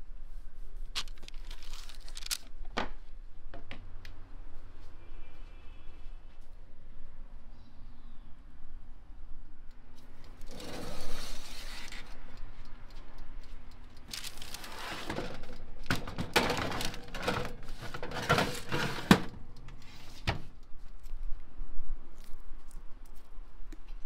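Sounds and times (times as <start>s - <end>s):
metal tray scraping on oven rack: 10.5s - 11.6s, 14.6s - 19.4s.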